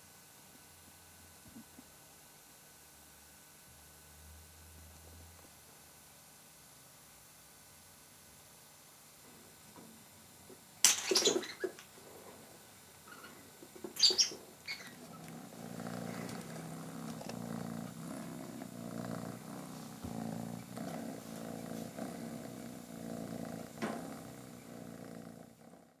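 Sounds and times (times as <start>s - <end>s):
kitten purring: 11.5s - 26.0s.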